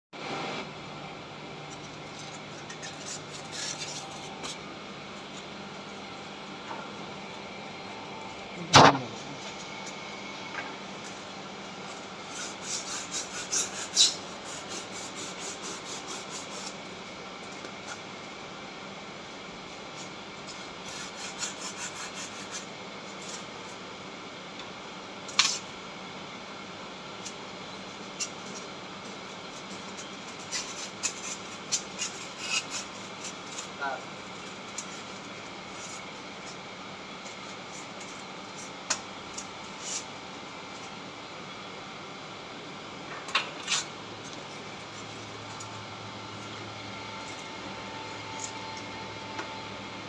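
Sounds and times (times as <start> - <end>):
industrial machinery hum: 0.2 - 50.0
sharp scrape: 1.7 - 4.6, 11.9 - 16.8, 39.8 - 40.1.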